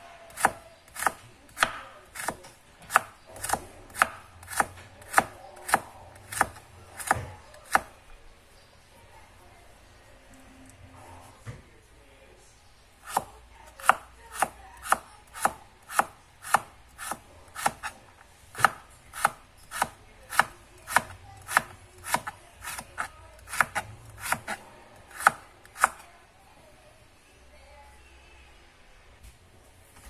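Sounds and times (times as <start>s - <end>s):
knife slicing on cutting board: 18.6s - 26.0s.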